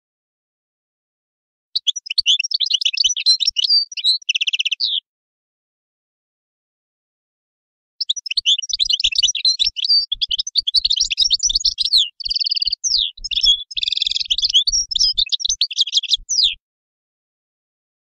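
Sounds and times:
bird twittering song: 0:01.8 - 0:05.0, 0:08.0 - 0:16.6.

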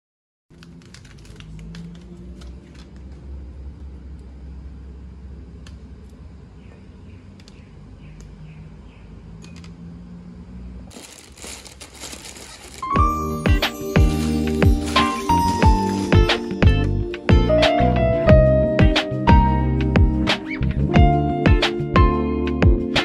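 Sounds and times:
plastic packaging crinkling: 0:00.5 - 0:03.2, 0:10.9 - 0:16.6
steady low hum: 0:02.0 - 0:12.7.

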